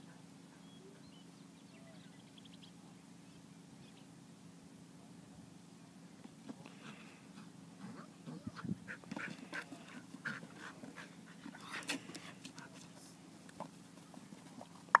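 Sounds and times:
dog panting: 6.8s - 13.1s.

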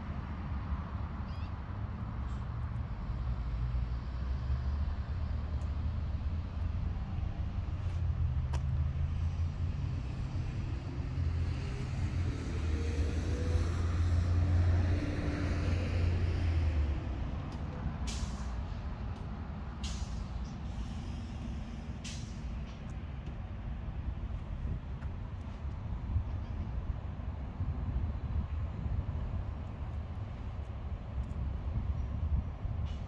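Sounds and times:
large vehicle engine humming: 0.0s - 33.0s.

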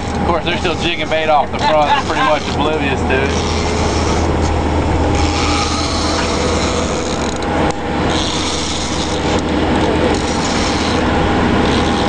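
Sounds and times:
low drone: 0.0s - 12.0s
fishing reel ratcheting: 3.2s - 4.3s, 5.1s - 7.5s, 8.1s - 9.5s, 10.1s - 12.0s.

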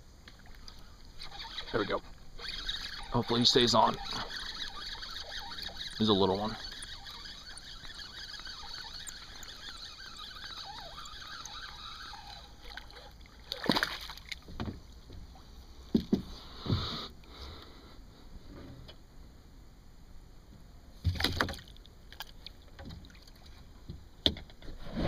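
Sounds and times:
quiet water sound: 0.0s - 25.0s
fish splashing at the surface: 9.3s - 14.4s.

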